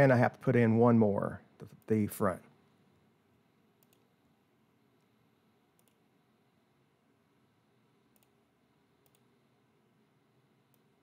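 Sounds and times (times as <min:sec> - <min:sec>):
computer mouse clicks: 0:03.8 - 0:04.1, 0:05.7 - 0:06.0, 0:08.1 - 0:08.4, 0:09.0 - 0:09.3.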